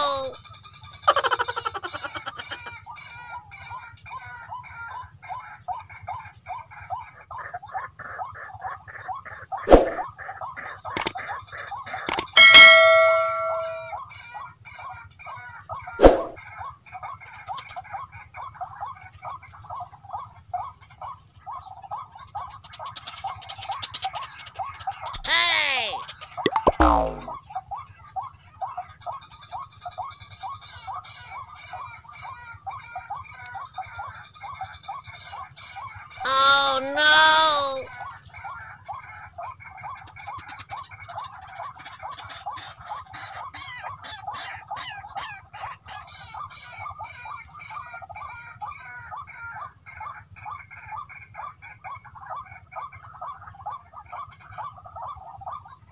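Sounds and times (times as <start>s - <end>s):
bird squeaky calls: 0.0s - 0.4s, 11.9s - 14.0s
rail bird calling: 0.0s - 5.4s, 9.0s - 14.3s, 36.2s - 38.2s
higher sliding bird calls: 9.7s - 10.0s, 12.1s - 14.0s, 16.0s - 16.4s.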